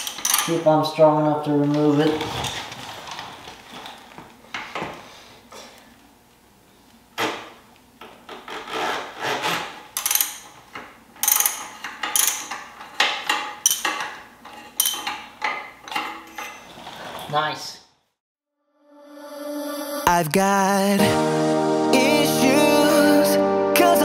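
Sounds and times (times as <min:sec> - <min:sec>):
socket ratchet clicking: 0:10.0 - 0:10.5, 0:11.2 - 0:12.6.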